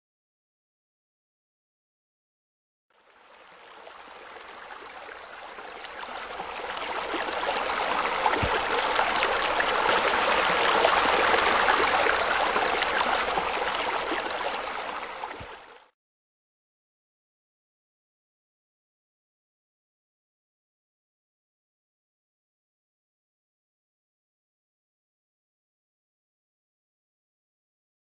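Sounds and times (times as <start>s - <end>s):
water splashing from bubbler: 5.8s - 15.6s.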